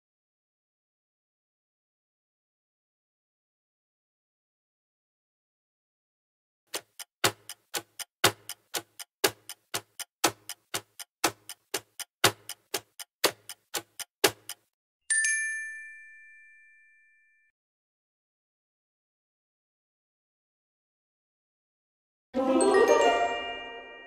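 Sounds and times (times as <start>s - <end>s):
clock ticking: 6.7s - 14.7s
bell ding: 15.1s - 17.5s.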